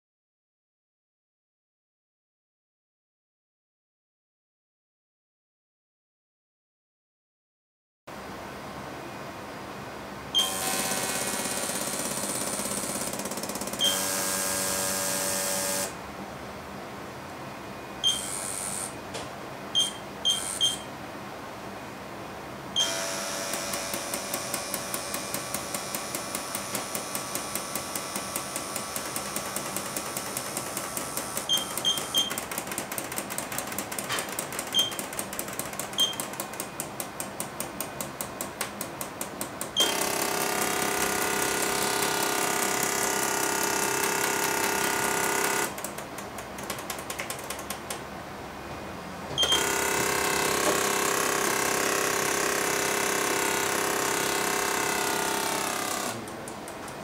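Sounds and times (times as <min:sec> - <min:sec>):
short high electronic beeps: 0:18.0 - 0:18.9, 0:19.8 - 0:20.9, 0:31.5 - 0:32.4, 0:36.0 - 0:36.2.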